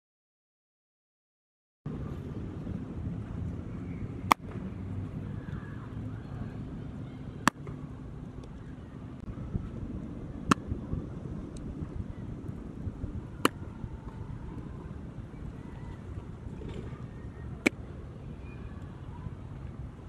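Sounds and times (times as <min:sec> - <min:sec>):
low outdoor noise: 0:01.9 - 0:20.0
baseball popping into leather mitt: 0:04.3 - 0:04.6, 0:13.4 - 0:13.6.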